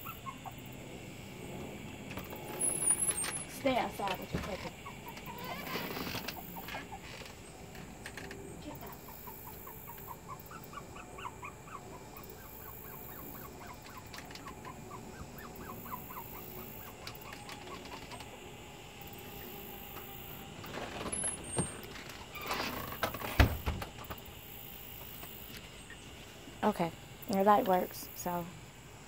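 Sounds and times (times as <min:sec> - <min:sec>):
faint outdoor background noise: 0:00.0 - 0:29.0
bird chirping: 0:08.7 - 0:18.3.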